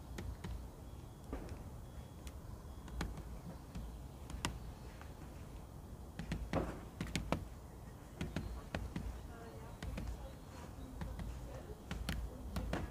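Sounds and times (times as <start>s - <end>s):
woodpecker tapping on wire feeder: 6.2s - 7.5s, 8.2s - 12.9s.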